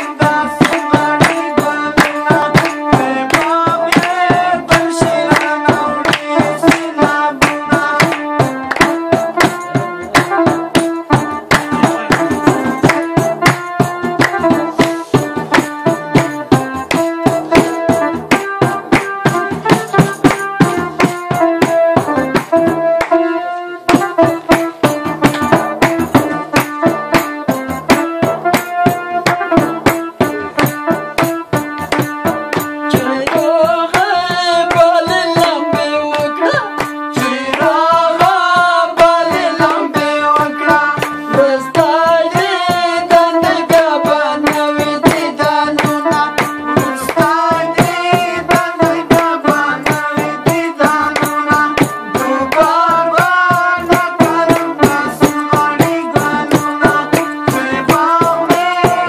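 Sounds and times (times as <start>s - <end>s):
frame drum fast beat: 0.0s - 23.2s, 23.9s - 59.0s
electronic keyboard melody: 0.0s - 33.4s
man singing with vibrato: 0.0s - 59.0s.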